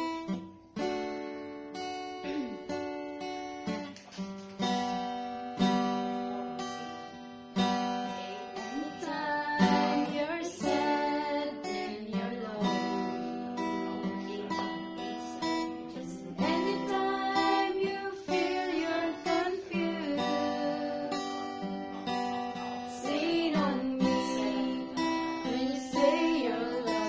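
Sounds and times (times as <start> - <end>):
strummed acoustic guitar: 0.0 - 27.0
women singing gospel: 8.1 - 27.0.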